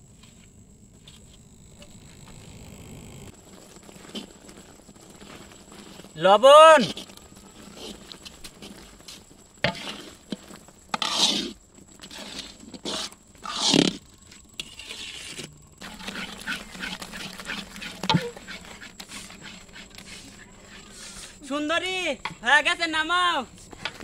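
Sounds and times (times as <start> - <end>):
metal ladle scraping a metal pan: 9.7 - 10.1, 11.0 - 13.8.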